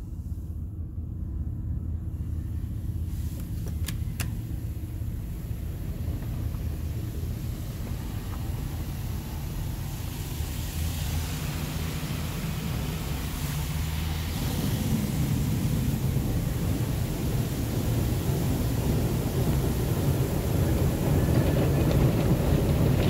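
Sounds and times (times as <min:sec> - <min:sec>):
low steady rumble: 0:00.0 - 0:23.0
sharp clicks: 0:03.4 - 0:04.4
water spray hissing: 0:06.3 - 0:21.0.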